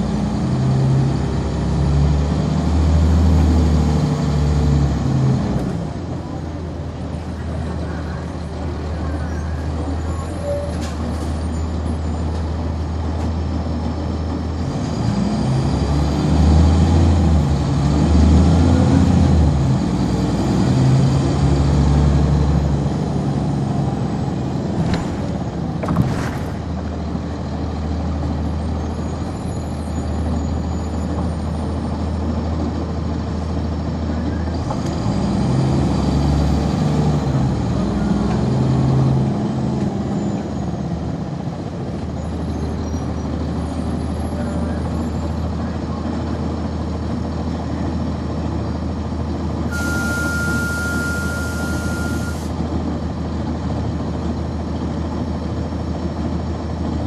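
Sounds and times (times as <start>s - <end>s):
bus diesel engine running: 0.0s - 57.0s
transmission whine: 49.7s - 52.5s.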